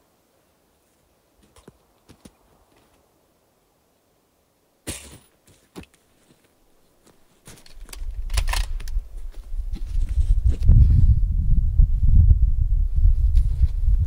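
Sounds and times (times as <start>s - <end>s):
wind buffeting microphone: 7.8s - 14.0s.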